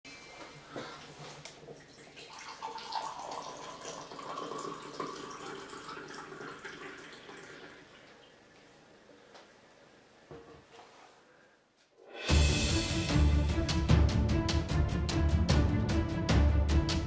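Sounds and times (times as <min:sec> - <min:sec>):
coffee pouring into cup: 0:01.6 - 0:08.1.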